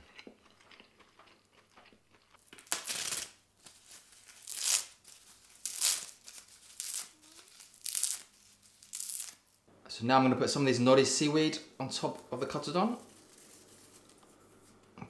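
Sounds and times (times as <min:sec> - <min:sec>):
seaweed sheet tearing and crackling: 0:02.6 - 0:09.6.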